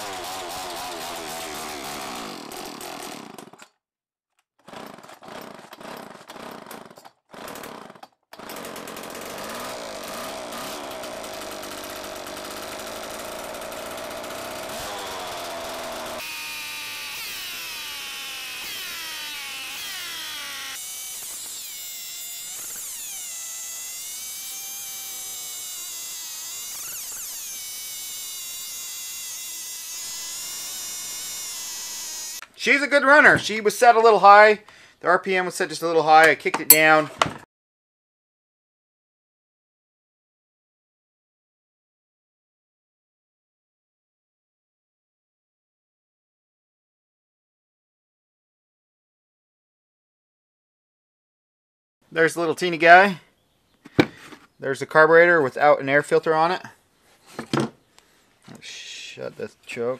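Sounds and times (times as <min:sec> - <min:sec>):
chainsaw engine revving: 0:00.0 - 0:03.6, 0:04.6 - 0:32.4.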